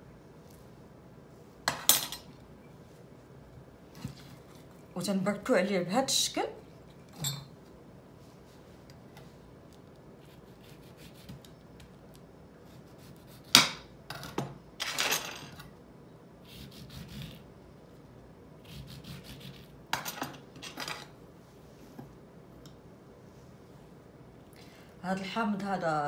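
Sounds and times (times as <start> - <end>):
knife scraping strokes: 10.2 - 11.4, 18.6 - 19.7.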